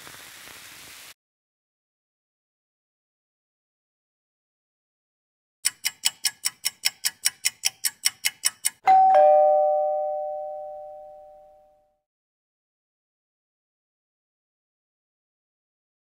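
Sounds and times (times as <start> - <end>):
quick clock-like ticking: 5.6 - 8.8
two-note ding-dong chime: 8.9 - 11.9.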